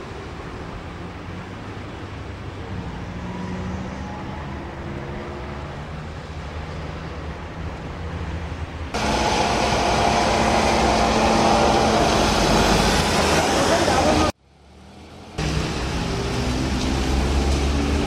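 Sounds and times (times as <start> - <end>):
dense traffic noise: 0.0 - 18.0
tram humming with whining tones: 7.0 - 14.3.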